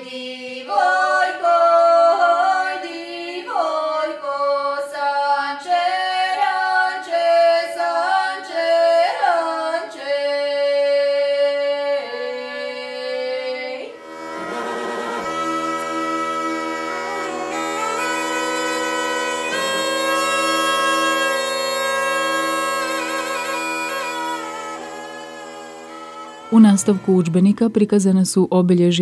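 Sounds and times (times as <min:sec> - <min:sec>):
woman singing unaccompanied: 0:00.0 - 0:14.0
bagpipe drone: 0:00.6 - 0:27.7.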